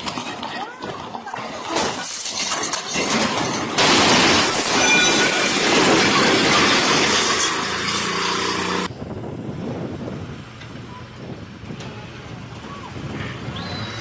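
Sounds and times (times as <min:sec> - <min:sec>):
backhoe engine running low: 0:07.7 - 0:14.0.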